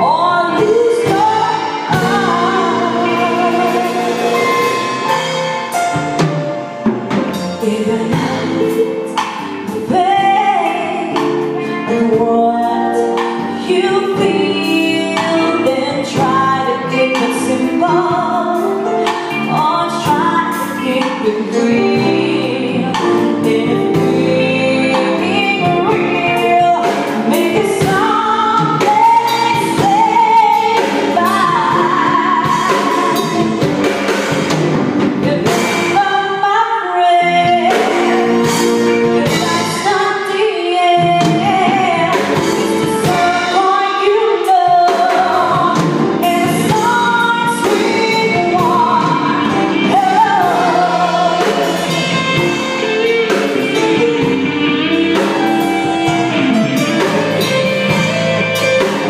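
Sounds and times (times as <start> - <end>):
woman singing: 0.0 - 5.1, 7.3 - 34.4, 35.1 - 59.0
live band playing: 0.0 - 59.0.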